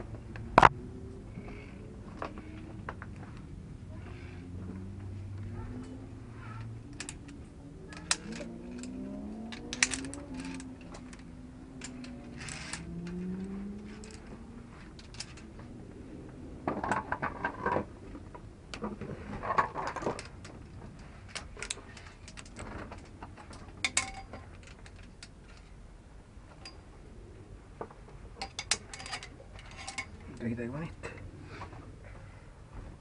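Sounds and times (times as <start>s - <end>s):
metal carabiners clinking: 6.5s - 15.5s, 19.5s - 25.7s, 28.4s - 30.4s.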